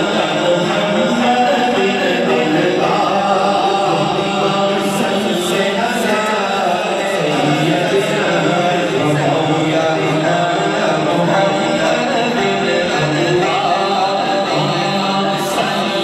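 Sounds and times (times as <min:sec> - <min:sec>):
men chanting together: 0:00.0 - 0:16.0.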